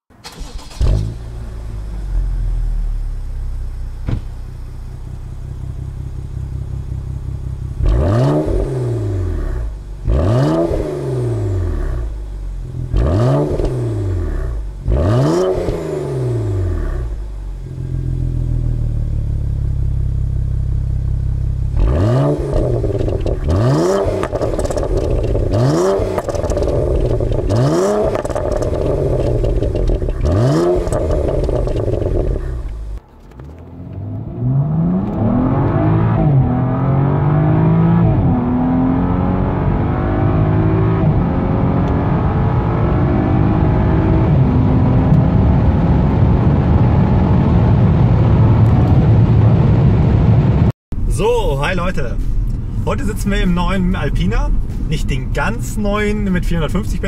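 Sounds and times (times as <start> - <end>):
car engine idling and revving: 0.1 - 57.0.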